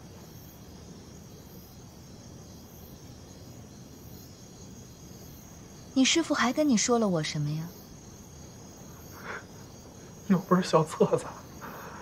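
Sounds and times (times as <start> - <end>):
crickets chirping: 0.0 - 12.0
low background hiss: 0.0 - 12.0.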